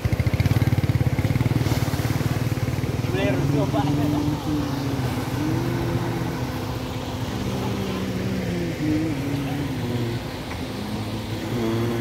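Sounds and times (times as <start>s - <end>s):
rumble of surging river water: 0.0s - 12.0s
bystanders' voices: 2.8s - 12.0s.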